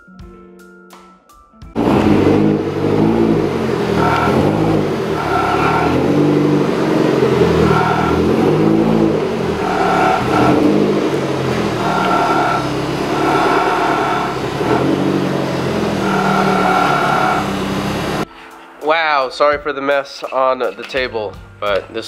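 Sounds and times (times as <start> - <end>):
car engine revving: 1.8 - 18.2.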